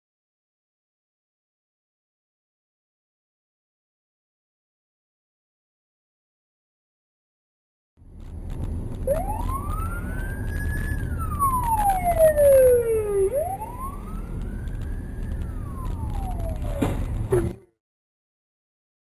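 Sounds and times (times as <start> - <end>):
moving car rumble: 8.0 - 17.8
emergency vehicle siren wailing: 8.9 - 17.5.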